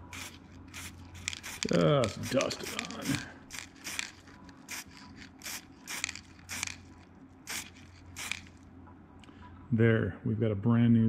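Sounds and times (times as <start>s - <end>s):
spray can hissing bursts: 0.0s - 6.9s, 7.5s - 8.6s.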